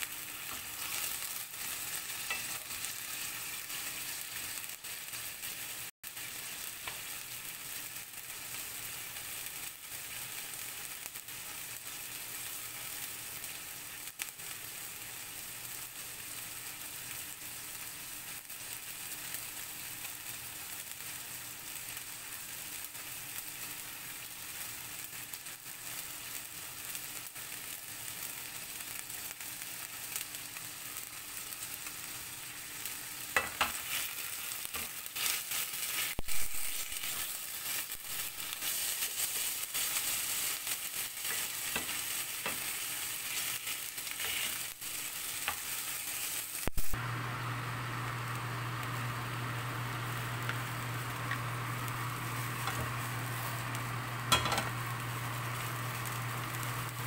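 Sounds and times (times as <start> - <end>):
livers sizzling in a pan: 0.0 - 57.0
spatula scraping a pan: 0.3 - 4.5, 33.3 - 46.4.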